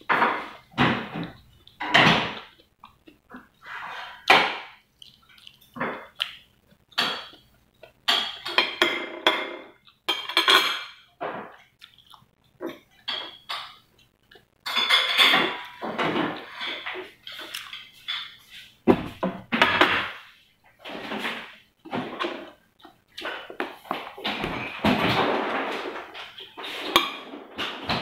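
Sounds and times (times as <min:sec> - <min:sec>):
chewing and smacking: 0:02.4 - 0:03.7, 0:04.8 - 0:08.1, 0:09.8 - 0:10.1, 0:11.5 - 0:13.4, 0:17.0 - 0:18.0.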